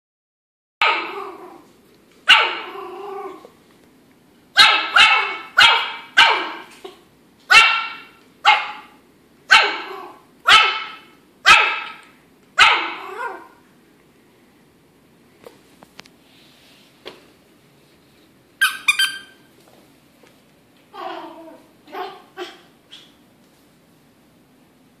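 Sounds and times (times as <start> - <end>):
puppy yapping: 0.8 - 1.7, 2.3 - 3.5, 4.6 - 13.6, 20.9 - 23.2.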